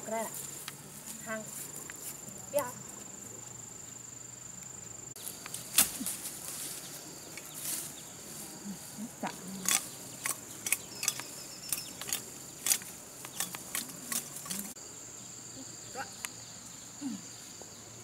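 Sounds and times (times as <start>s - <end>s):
insects buzzing: 0.0s - 18.0s
leaves rustling: 0.0s - 18.0s
machete cracking stems: 5.4s - 6.7s, 9.6s - 14.8s.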